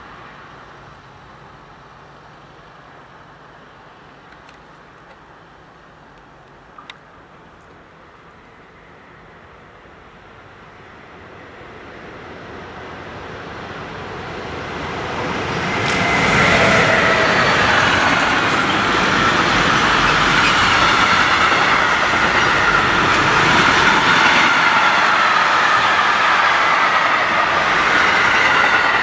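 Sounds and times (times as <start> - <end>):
freight train rolling rumble: 0.0 - 29.0
squealing train wheels: 14.6 - 29.0.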